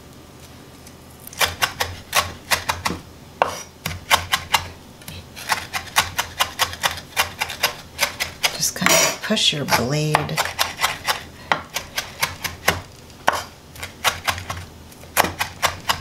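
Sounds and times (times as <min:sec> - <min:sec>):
knife chopping on wooden board: 0:01.4 - 0:04.7, 0:05.4 - 0:09.1, 0:09.7 - 0:16.0.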